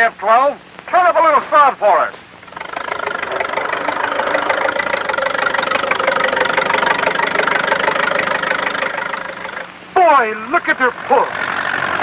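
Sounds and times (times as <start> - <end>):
tractor engine running under load: 2.4 - 9.7.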